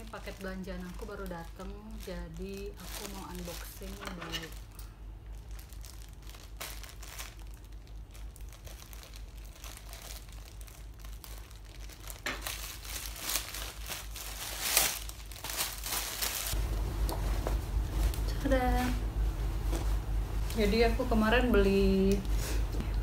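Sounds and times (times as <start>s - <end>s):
plastic mailer bag crinkling: 0.0s - 17.4s.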